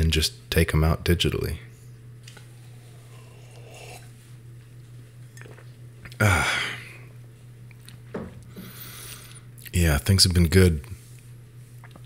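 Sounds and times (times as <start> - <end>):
low electrical hum: 0.0 - 12.0
person's loud voiced exhalation: 6.2 - 7.0.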